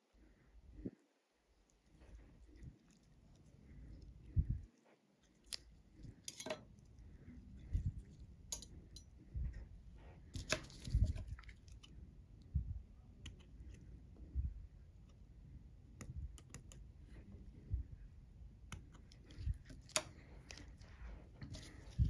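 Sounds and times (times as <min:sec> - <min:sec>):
dull low thumps: 0:12.5 - 0:12.9, 0:17.6 - 0:18.2.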